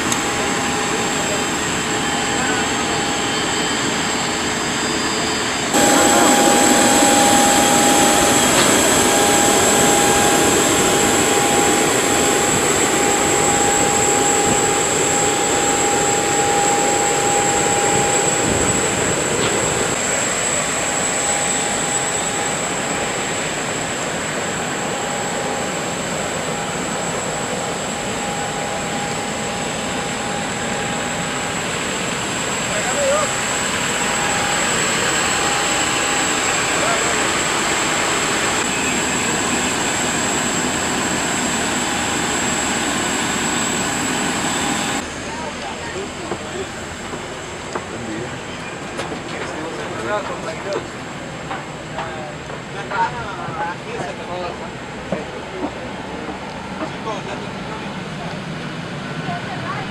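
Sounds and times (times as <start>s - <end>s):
rushing noise: 0.0s - 47.6s
jet turbine whine: 0.0s - 59.9s.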